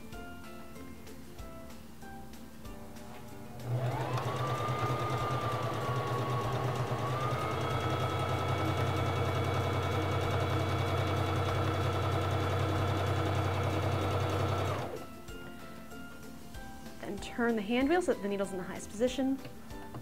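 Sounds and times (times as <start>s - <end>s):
sewing machine running: 3.6s - 15.0s.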